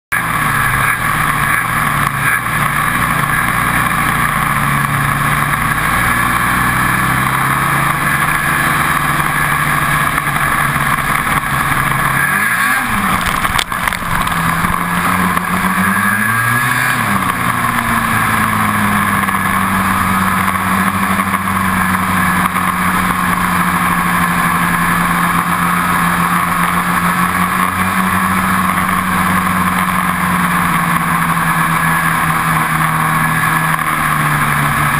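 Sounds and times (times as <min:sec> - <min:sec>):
snowmobile engine under throttle: 0:00.1 - 0:34.9.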